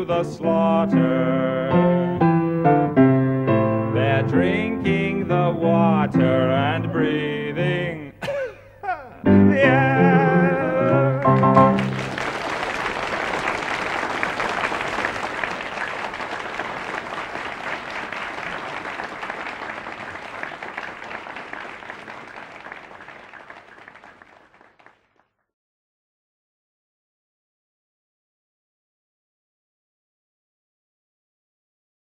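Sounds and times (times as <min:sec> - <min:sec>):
audience applauding: 0:09.5 - 0:25.3.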